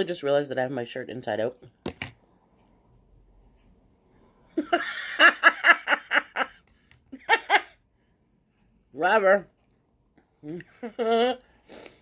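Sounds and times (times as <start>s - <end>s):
woman laughing: 4.6s - 7.8s, 10.4s - 11.5s.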